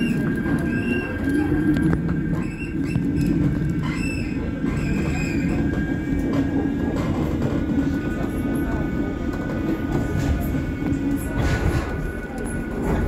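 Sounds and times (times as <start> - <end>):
tram wheels rumbling on rail: 0.0 - 13.0.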